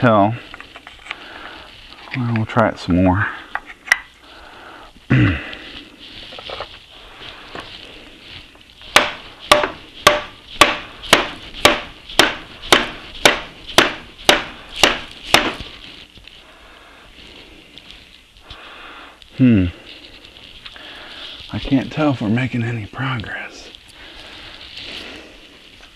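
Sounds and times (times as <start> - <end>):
rubber mallet striking metal: 8.9 - 15.6.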